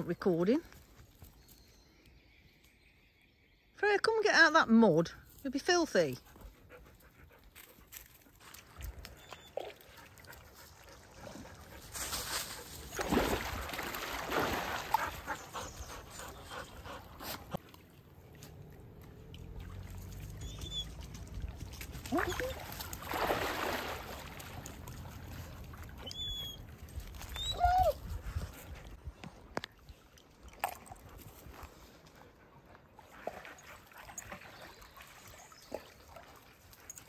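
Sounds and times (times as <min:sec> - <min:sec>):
dog whining: 0:20.4 - 0:21.0, 0:26.0 - 0:26.7, 0:27.3 - 0:28.2.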